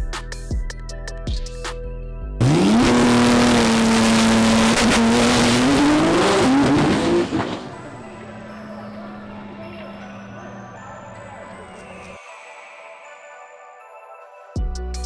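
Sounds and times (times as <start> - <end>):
race car engine revving: 2.4 - 11.8.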